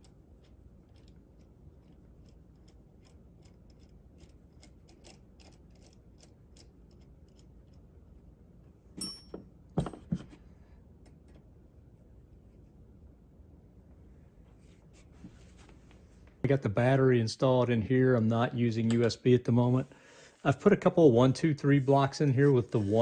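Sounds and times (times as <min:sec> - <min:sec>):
screw threading clicks: 0:00.4 - 0:07.8
sharp metallic clink: 0:09.0 - 0:09.5.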